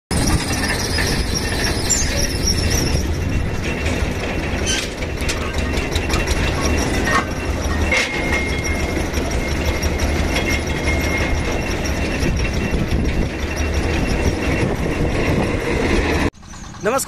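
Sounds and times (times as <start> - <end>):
high metallic squealing: 0.1 - 17.0
drilling rig engine drone: 0.2 - 17.0
steady high ringing tone: 5.2 - 15.8.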